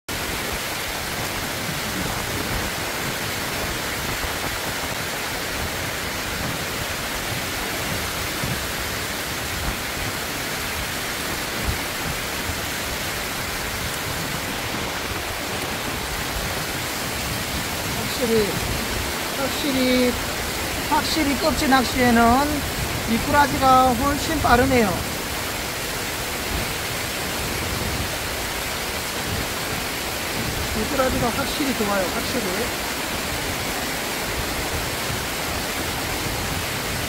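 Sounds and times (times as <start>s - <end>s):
stream water rushing over rocks: 0.1s - 37.0s.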